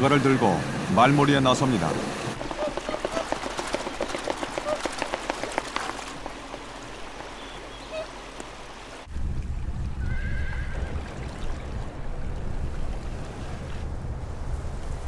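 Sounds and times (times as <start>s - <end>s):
wavering animal call: 2.4s - 3.4s, 4.5s - 4.9s, 7.4s - 8.2s.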